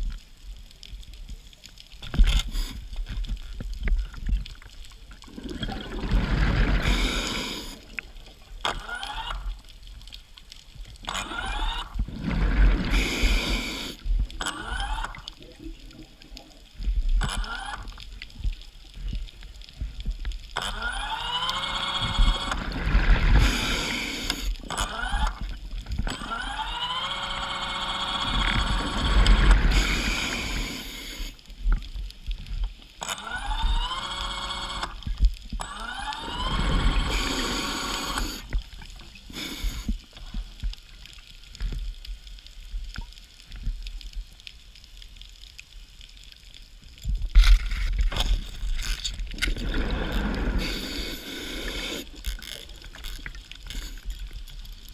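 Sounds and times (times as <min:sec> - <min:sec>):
gurgling water rushing: 0:05.2 - 0:08.0, 0:11.1 - 0:16.2, 0:20.7 - 0:30.9, 0:35.7 - 0:38.9, 0:47.9 - 0:53.4
underwater scooter motor whine: 0:26.1 - 0:30.5.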